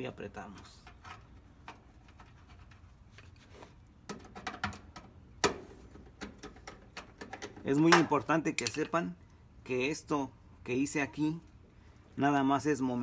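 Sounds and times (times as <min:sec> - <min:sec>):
nut driver clicking and scraping: 0:06.0 - 0:09.0.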